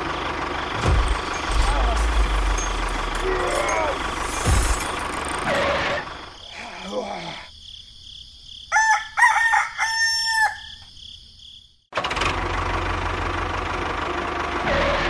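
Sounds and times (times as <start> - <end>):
rooster crowing: 8.6 - 10.9.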